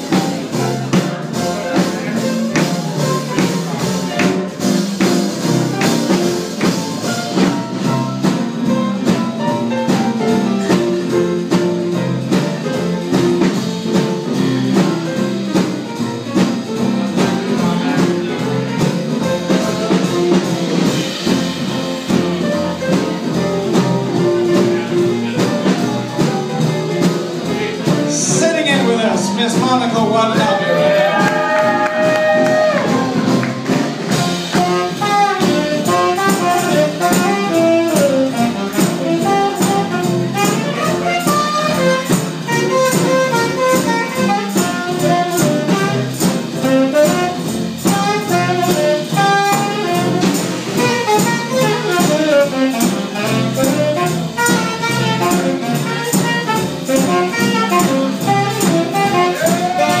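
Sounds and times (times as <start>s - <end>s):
guitar: 0.0s - 60.0s
tambourine beat: 0.0s - 60.0s
upright bass: 0.0s - 60.0s
saxophone solo: 30.1s - 60.0s.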